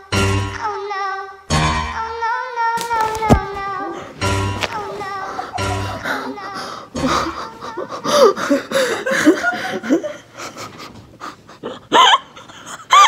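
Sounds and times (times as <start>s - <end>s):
woman laughing through tears: 3.6s - 13.0s
high-pitched squealing laugh: 4.8s - 8.0s, 11.8s - 13.0s.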